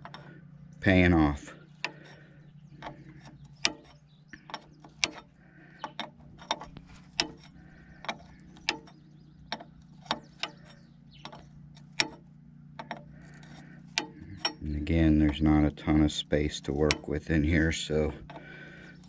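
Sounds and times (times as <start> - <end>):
steady low hum: 0.0 - 19.0
wrench clicking on metal nut: 2.8 - 8.9, 9.5 - 12.2, 12.8 - 14.6, 16.8 - 17.2.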